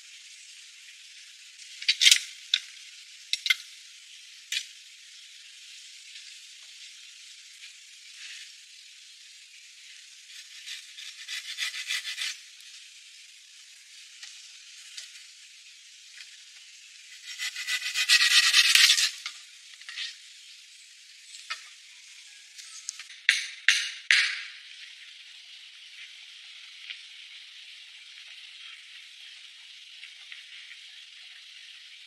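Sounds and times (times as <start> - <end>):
faint steady hiss: 0.0 - 32.0
scraping and rustling in leaves: 10.2 - 12.5.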